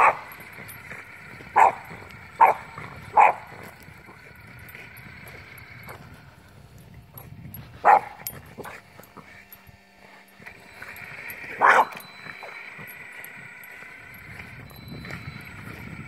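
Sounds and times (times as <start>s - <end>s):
dog barking: 0.0s - 0.4s, 1.5s - 3.7s, 7.8s - 8.8s, 11.5s - 12.0s.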